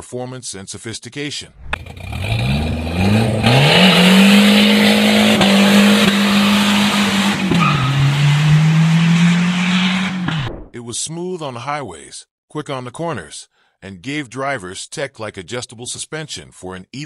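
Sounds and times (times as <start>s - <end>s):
car engine revving high: 1.6s - 10.5s
tyres spinning and squealing: 1.6s - 10.5s.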